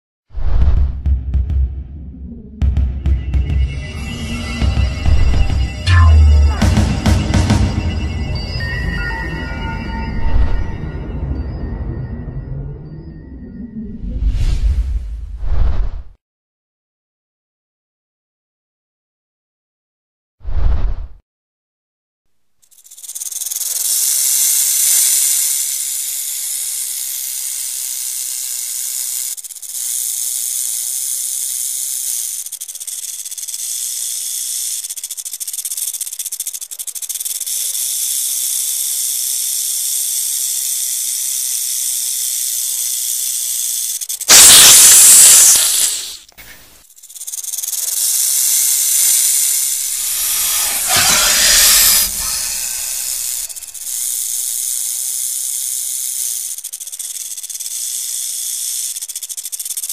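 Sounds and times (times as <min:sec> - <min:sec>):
rattlesnake rattling: 0:03.6 - 0:08.4, 0:22.6 - 0:59.9.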